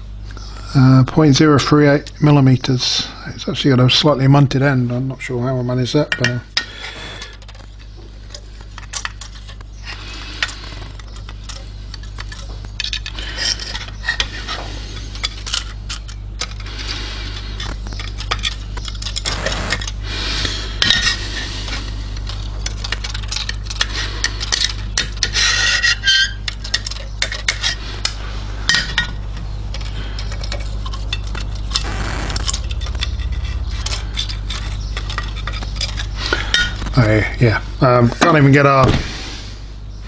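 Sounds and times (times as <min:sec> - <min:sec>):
low hum: 0:27.7 - 0:37.0.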